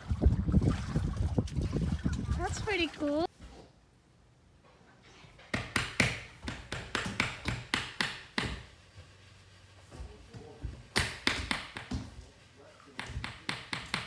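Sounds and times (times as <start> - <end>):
baby's hands slapping wooden floor: 5.5 - 8.7, 10.9 - 12.1.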